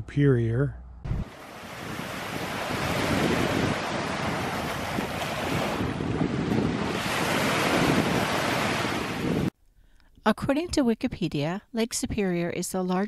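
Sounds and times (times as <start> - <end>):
wind buffeting microphone: 1.0 - 9.5
waves washing: 1.1 - 9.5.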